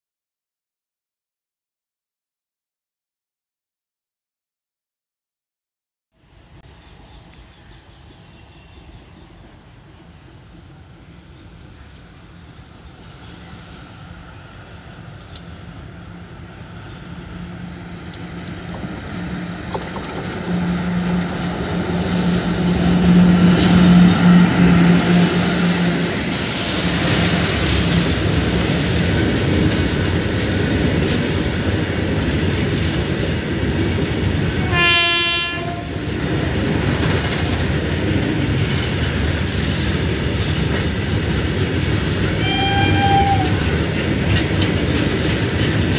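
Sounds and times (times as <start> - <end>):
electric locomotive hum: 6.2 - 45.9
freight wagons rail rumble: 6.6 - 45.9
short train horn: 8.0 - 9.1, 34.6 - 36.0, 42.4 - 43.7.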